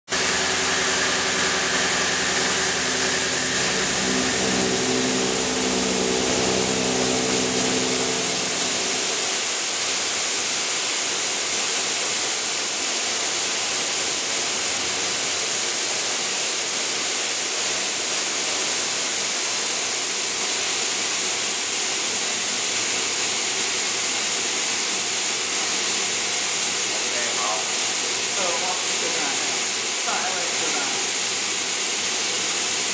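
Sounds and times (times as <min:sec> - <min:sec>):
milling cutter tones: 0:00.1 - 0:09.3
loud hiss: 0:00.1 - 0:11.0, 0:20.4 - 0:32.9.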